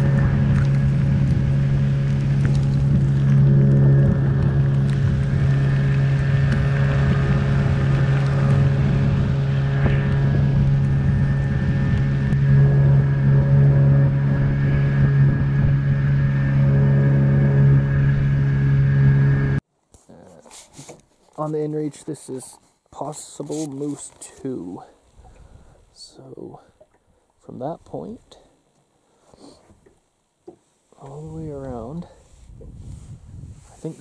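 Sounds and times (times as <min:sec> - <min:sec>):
outboard motor running: 0:00.0 - 0:19.6
wind and water rushing: 0:00.0 - 0:19.6, 0:31.0 - 0:34.0.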